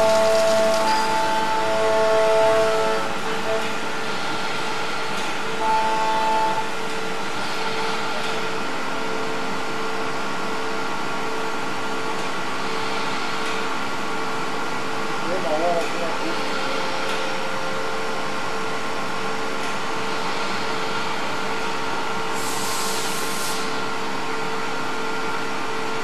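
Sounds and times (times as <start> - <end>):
milling machine cutting metal: 0.0 - 3.7.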